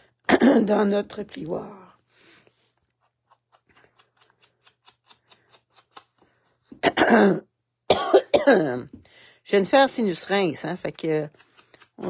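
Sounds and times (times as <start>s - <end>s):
person coughing: 0.3s - 0.8s, 6.8s - 8.8s.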